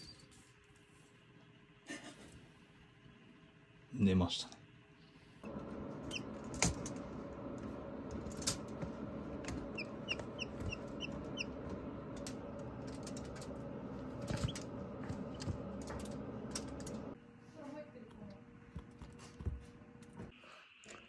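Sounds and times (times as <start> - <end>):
chick peeping: 6.0 - 6.4, 9.4 - 11.6.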